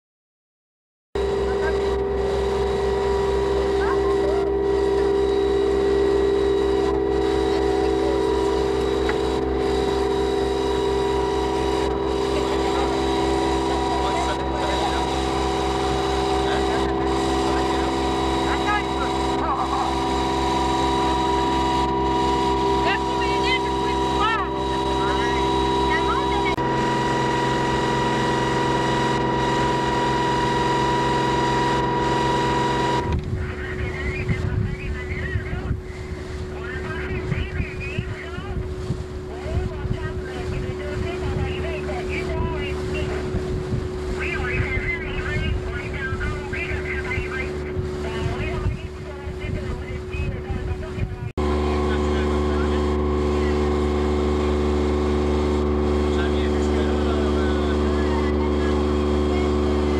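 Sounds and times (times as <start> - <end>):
boat engine running: 1.2 - 59.9
wind buffeting microphone: 32.9 - 51.6.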